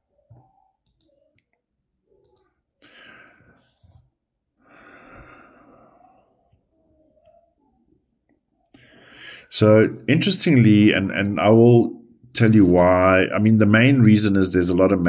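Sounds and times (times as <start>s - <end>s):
man breathing: 2.8s - 4.0s, 4.6s - 6.2s, 8.7s - 9.5s.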